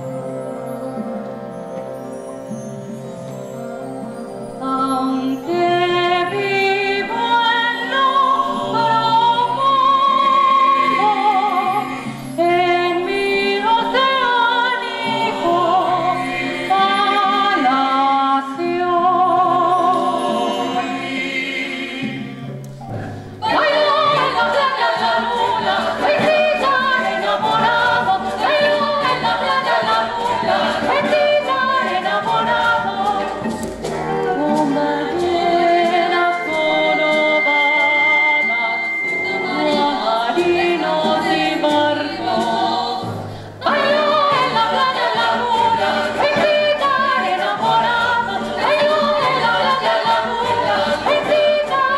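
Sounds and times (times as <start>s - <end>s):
woman singing with vibrato: 4.6s - 21.4s, 23.4s - 33.5s, 34.1s - 51.9s
ensemble with choir: 13.5s - 17.6s, 19.6s - 22.4s, 23.4s - 51.9s
sustained accompaniment: 20.1s - 51.1s.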